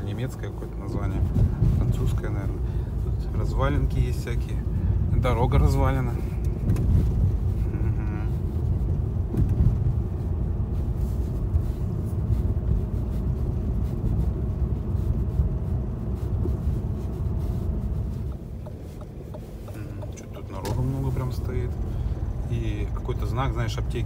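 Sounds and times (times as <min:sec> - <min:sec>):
car road rumble and tyre noise: 0:00.0 - 0:24.0
knocks and rattles from bumps: 0:18.2 - 0:20.9.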